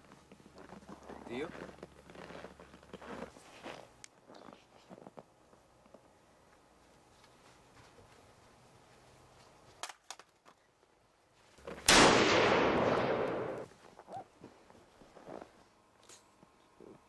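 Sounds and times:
loud blast with hissing tail: 11.9 - 13.7.

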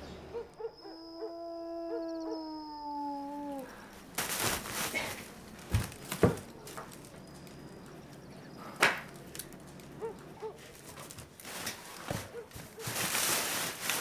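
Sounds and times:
rustling: 3.3 - 14.0.

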